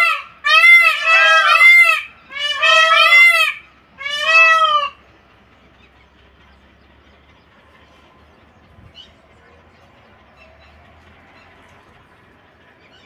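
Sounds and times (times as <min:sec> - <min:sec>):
peafowl honking calls: 0:00.0 - 0:06.1.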